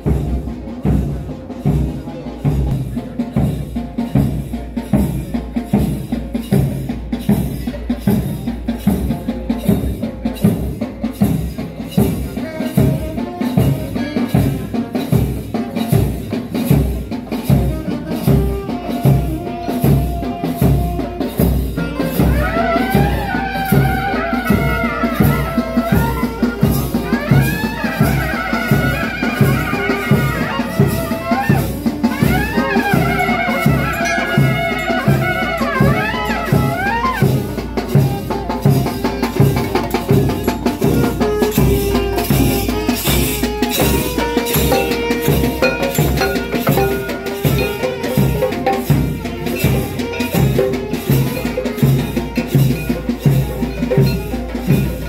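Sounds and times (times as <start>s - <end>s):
drums beating steady rhythm: 0.0s - 55.0s
wind instrument wavering melody: 17.3s - 55.0s.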